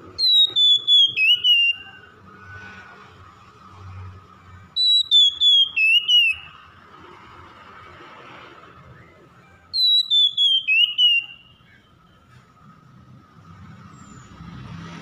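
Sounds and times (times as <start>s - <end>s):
bird singing whistled notes: 0.0s - 2.2s, 4.7s - 6.8s, 8.8s - 12.2s.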